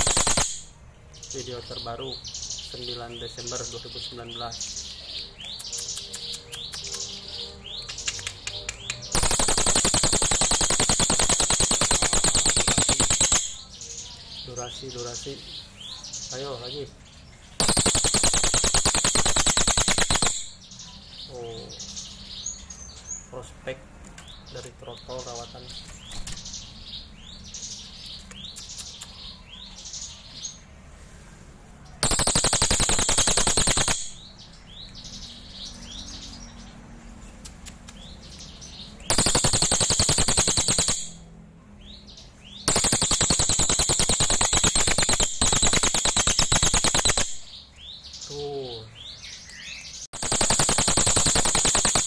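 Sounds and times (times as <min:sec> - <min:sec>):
bird rapid rattle call: 0:00.0 - 0:00.7, 0:09.1 - 0:13.6, 0:17.6 - 0:20.6, 0:32.0 - 0:34.3, 0:39.1 - 0:41.2, 0:42.7 - 0:47.5, 0:50.2 - 0:52.0
bird whistled notes and clicks: 0:00.0 - 0:00.7, 0:04.7 - 0:13.7, 0:17.6 - 0:20.6, 0:28.0 - 0:29.2, 0:32.0 - 0:35.0, 0:39.1 - 0:41.2, 0:42.6 - 0:47.5, 0:49.3 - 0:52.0.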